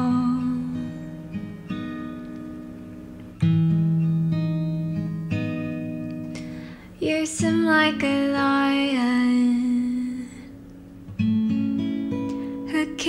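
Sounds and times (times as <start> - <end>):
person singing: 0.0 - 1.1, 7.0 - 10.5, 12.7 - 13.0
acoustic guitar chords: 0.0 - 13.0.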